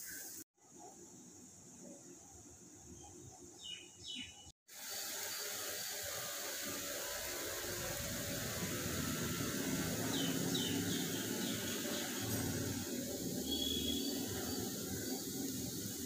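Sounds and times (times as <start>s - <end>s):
batter sizzling on a hot griddle: 4.7s - 16.0s
bird chirps: 10.1s - 12.4s, 13.4s - 15.2s.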